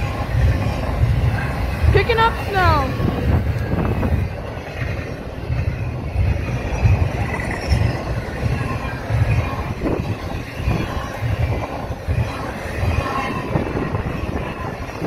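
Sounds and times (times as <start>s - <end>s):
freight train rolling past: 0.0s - 15.0s
faint high wheel squeal: 6.4s - 11.2s.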